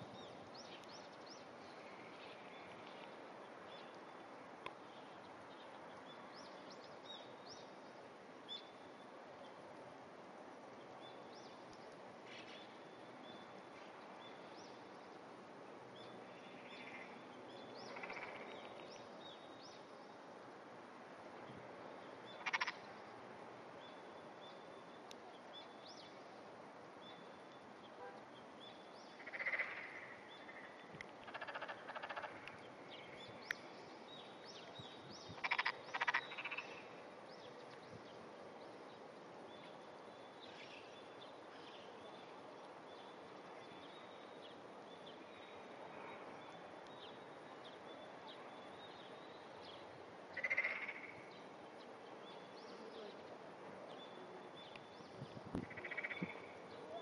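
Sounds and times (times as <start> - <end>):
frogs croaking: 16.3 - 18.9, 22.3 - 23.1, 29.1 - 33.7, 35.2 - 37.1, 50.3 - 51.6, 55.6 - 56.9.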